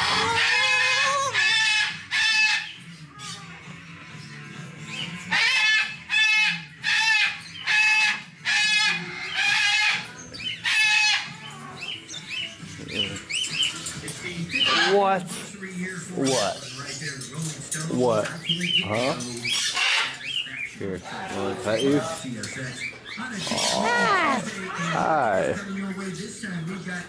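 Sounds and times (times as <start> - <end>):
parrot squawking: 0.0 - 3.6, 4.9 - 13.8, 14.5 - 15.2, 18.3 - 25.6
faint background music: 0.0 - 27.0.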